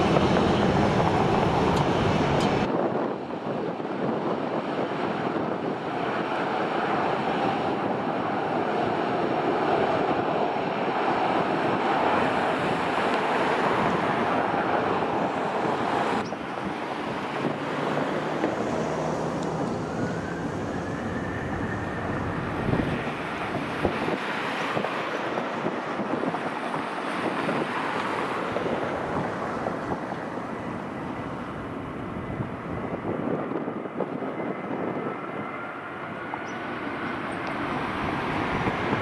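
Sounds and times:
jet aircraft engine noise: 0.0s - 39.0s
wind buffeting microphone: 0.0s - 39.0s
high whine rising in pitch: 18.6s - 23.4s.

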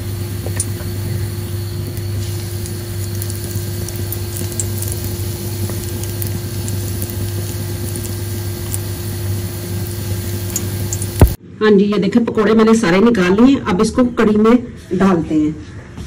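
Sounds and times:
deep-frying sizzle and crackling: 0.0s - 11.4s
low hum: 0.0s - 11.4s.

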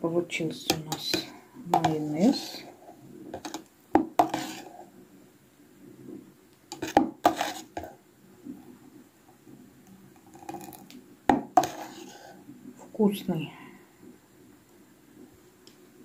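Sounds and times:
metal spoon scraping plastic beaker: 0.7s - 2.8s, 3.4s - 4.8s, 6.7s - 7.9s, 10.2s - 12.4s.

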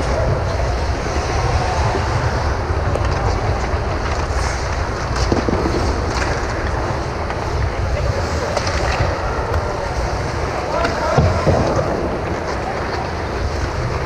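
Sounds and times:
low rumble of ice rink: 0.0s - 14.0s
faint clicks from play on ice: 2.8s - 14.0s.

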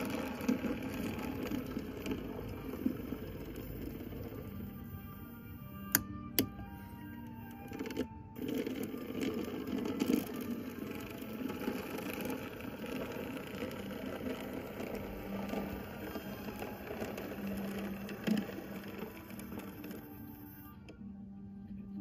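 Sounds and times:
wheels rattling on rails: 0.0s - 4.5s
model train mechanism whirring: 0.0s - 20.8s.

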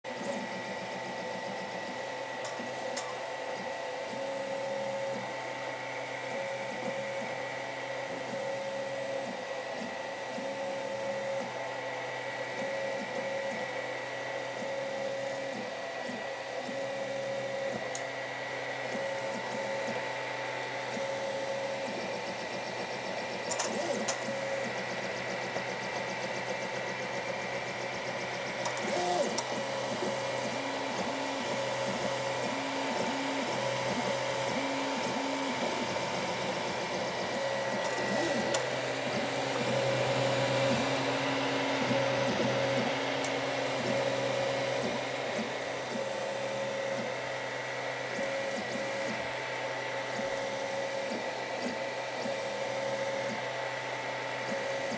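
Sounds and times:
cooling fans humming: 0.1s - 54.9s
stepper motors whining: 20.9s - 49.2s.

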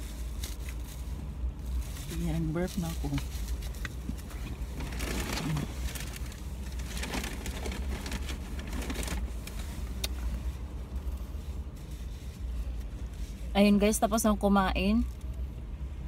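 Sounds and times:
food packaging rustling: 0.0s - 10.3s
car cabin low rumble: 0.0s - 16.0s.

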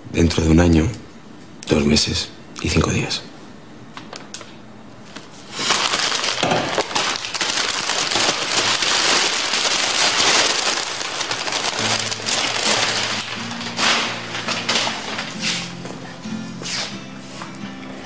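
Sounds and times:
plastic wrapping crinkling: 4.0s - 16.1s
music: 10.5s - 18.0s.

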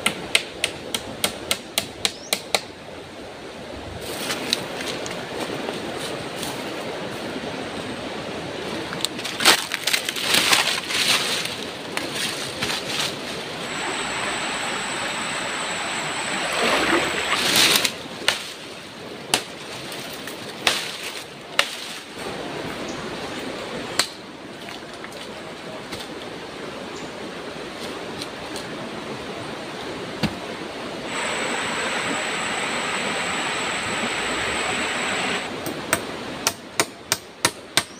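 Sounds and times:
flowing river water: 2.8s - 36.6s
dry branches crackling and snapping: 9.0s - 13.6s, 17.4s - 18.6s, 19.3s - 22.1s.

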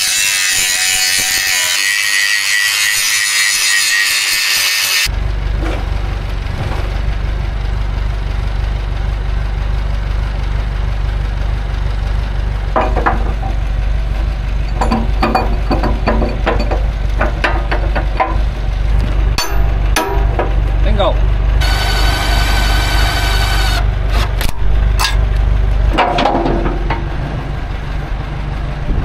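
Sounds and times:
diesel digger engine idling: 5.1s - 29.0s
metal clanks and knocks: 12.6s - 21.1s, 24.9s - 27.6s.

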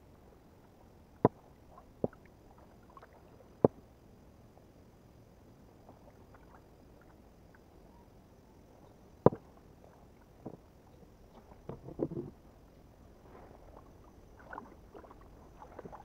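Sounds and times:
water noise: 0.0s - 4.8s, 5.6s - 16.0s
kayak paddling: 9.2s - 16.0s.

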